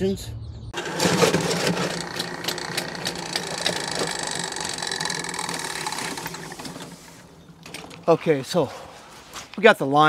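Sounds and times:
drain cleaning machine motor hum: 0:00.8 - 0:08.2.

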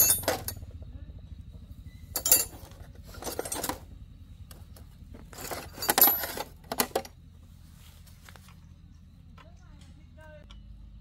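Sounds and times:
metal parts clinking and rattling: 0:00.0 - 0:00.6, 0:02.1 - 0:03.9, 0:04.5 - 0:07.2
steady low hum: 0:00.0 - 0:11.0.

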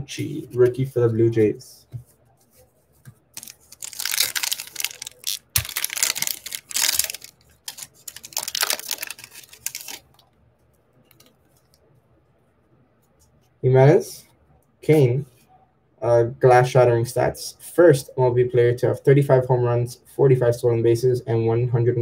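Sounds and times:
foil wrapper crinkling and tearing: 0:03.4 - 0:10.2.

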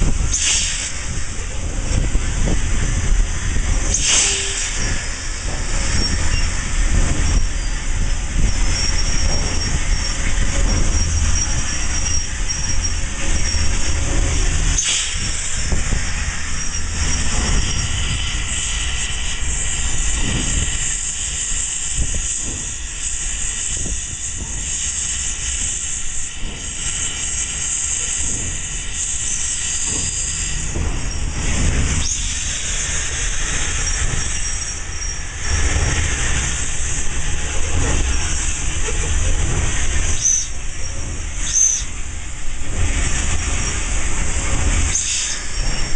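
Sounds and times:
steam hissing: 0:00.0 - 0:45.9
wheels rumbling on rail: 0:00.0 - 0:45.9
high wheel squeal: 0:07.4 - 0:14.0, 0:16.4 - 0:18.0, 0:33.7 - 0:35.4, 0:40.0 - 0:42.0.

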